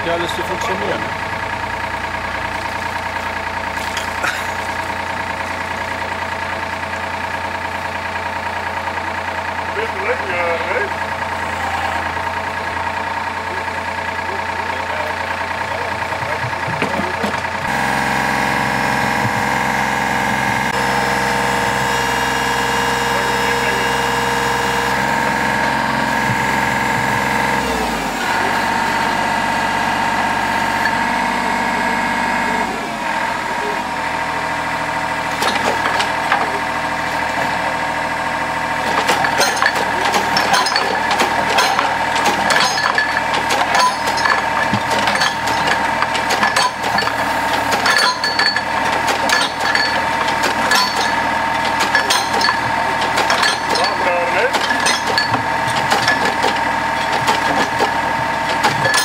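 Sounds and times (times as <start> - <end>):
drilling rig engine running: 0.0 - 59.0
metallic knocks and clanks: 1.9 - 8.6, 15.4 - 17.8, 35.3 - 37.8, 38.7 - 59.0.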